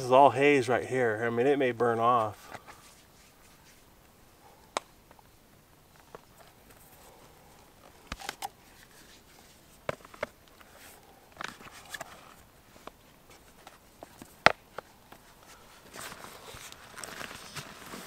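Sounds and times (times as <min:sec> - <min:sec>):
light clicks and scuffs: 0:02.2 - 0:03.9.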